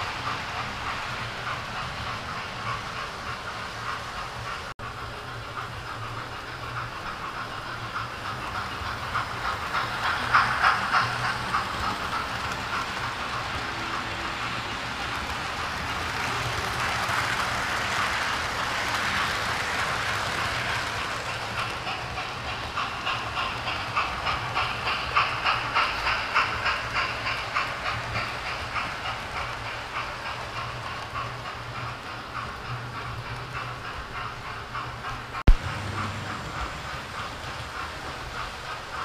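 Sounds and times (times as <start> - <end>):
model train wheels clicking: 0.0 - 39.0
rushing whir of passing coaches: 35.5 - 38.9.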